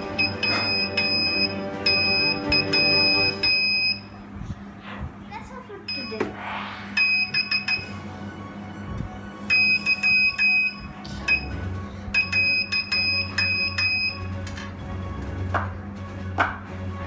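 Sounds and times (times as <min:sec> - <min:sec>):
buzzer beeping morse code: 0:00.0 - 0:04.1, 0:09.5 - 0:11.6, 0:12.2 - 0:14.3.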